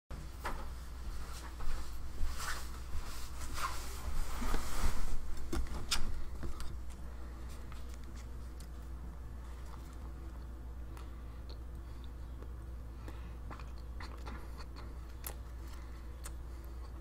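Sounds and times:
low steady hum: 0.1s - 17.0s.

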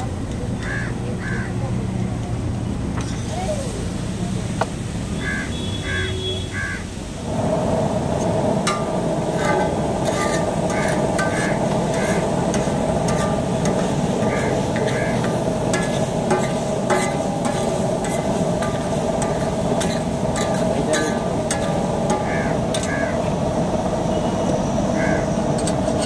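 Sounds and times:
vegetables sizzling in oil: 0.1s - 26.0s
metal spatula chopping on griddle: 8.6s - 23.2s.

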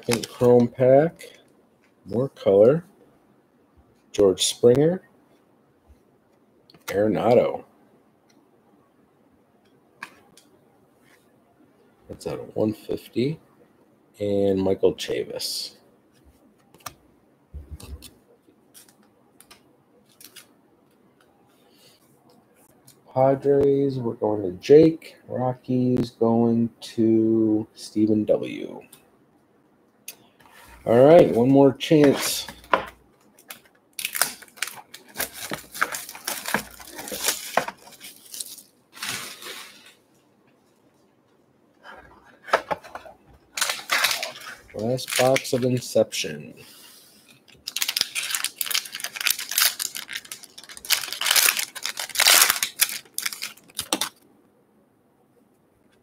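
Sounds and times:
plastic wrap crinkling and tearing: 0.0s - 0.8s, 33.3s - 40.0s, 43.5s - 45.9s, 47.3s - 54.2s
card rustling in plastic sleeve: 0.0s - 1.3s, 20.0s - 20.6s, 30.8s - 40.0s, 42.3s - 46.0s, 47.2s - 54.2s.

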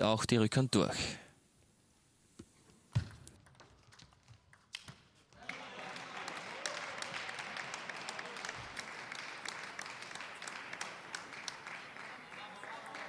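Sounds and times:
crowd applause: 5.4s - 13.0s.

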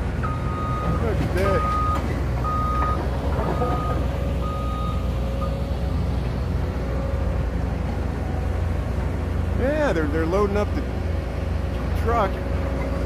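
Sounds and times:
low diesel machinery rumble: 0.0s - 13.0s
reversing alarm beeping: 0.2s - 6.0s.

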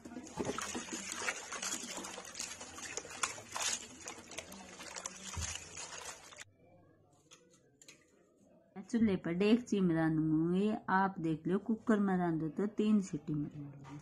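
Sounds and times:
water splashing in a bowl: 0.0s - 6.5s.

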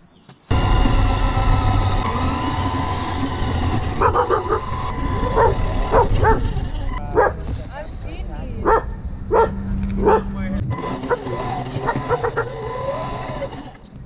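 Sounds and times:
toy car motor whining: 0.5s - 7.2s, 10.7s - 14.0s
tyres rumbling on asphalt: 0.5s - 14.0s
dog barking: 4.0s - 6.5s, 7.1s - 7.4s, 8.6s - 10.3s, 11.0s - 12.5s.

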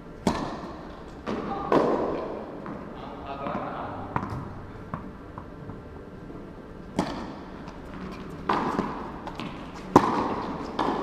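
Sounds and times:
tennis ball hits on racket: 0.2s - 2.3s, 7.0s - 7.4s, 8.0s - 11.0s.

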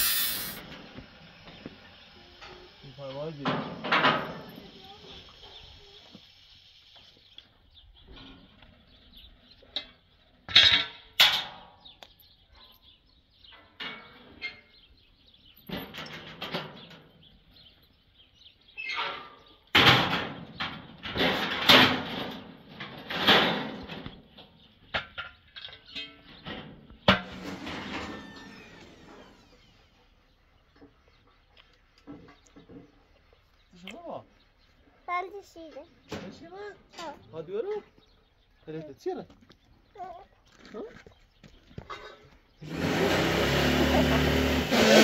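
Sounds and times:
metallic clanks and bangs: 19.0s - 29.3s.

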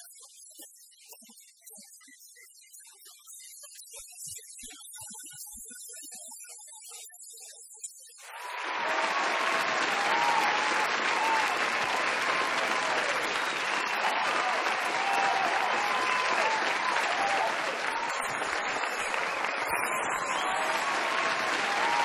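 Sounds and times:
audience applauding: 8.2s - 22.0s
voices: 8.3s - 22.0s.

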